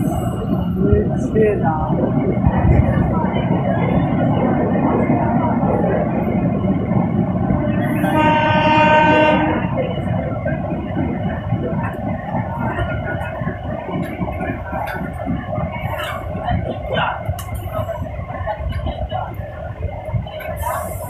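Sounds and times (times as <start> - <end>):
train rumbling and rattling: 0.0 - 21.0
train horn blast: 7.9 - 9.9.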